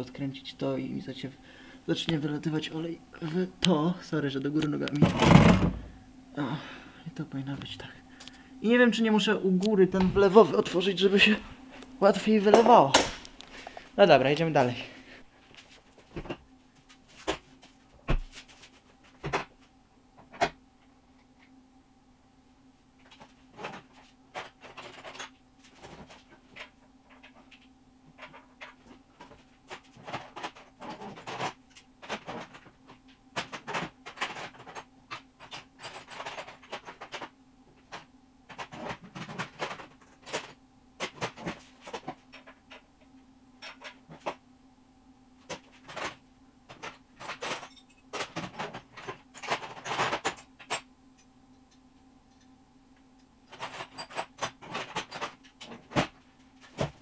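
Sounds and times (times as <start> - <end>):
low electrical hum: 0.0 - 57.0.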